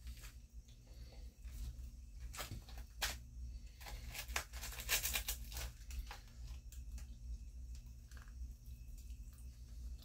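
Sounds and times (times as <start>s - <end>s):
low steady hum: 0.0s - 10.0s
candy wrapper crinkling: 3.8s - 7.1s.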